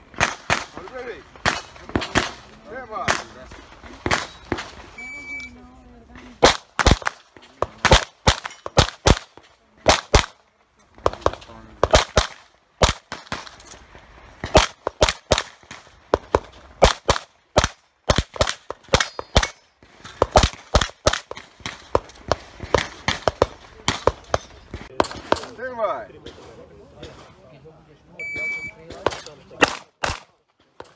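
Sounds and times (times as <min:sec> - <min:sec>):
pistol shots: 0:00.1 - 0:00.8, 0:01.4 - 0:04.8, 0:06.4 - 0:10.4, 0:11.0 - 0:13.7, 0:14.4 - 0:25.6, 0:28.4 - 0:30.9.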